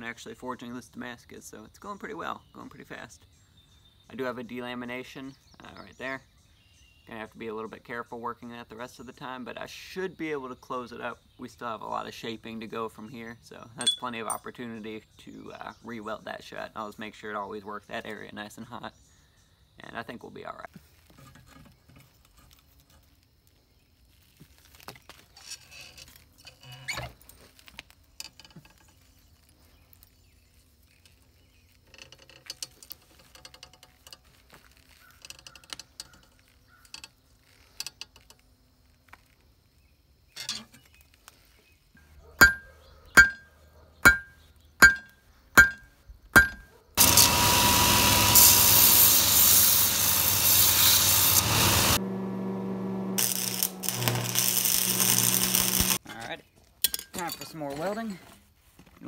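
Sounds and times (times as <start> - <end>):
hammer blows on steel on anvil: 42.4 - 45.8
electric welder noise: 47.0 - 56.0.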